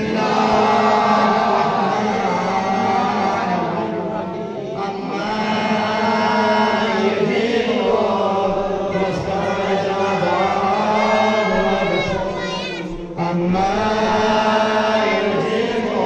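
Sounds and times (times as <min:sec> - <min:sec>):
voices chanting devotional recitation: 0:00.0 - 0:16.0.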